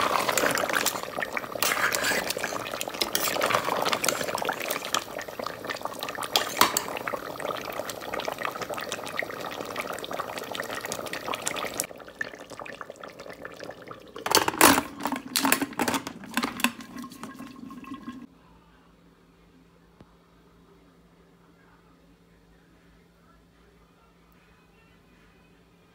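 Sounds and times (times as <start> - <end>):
gravy sizzling and bubbling: 0.0 - 18.3.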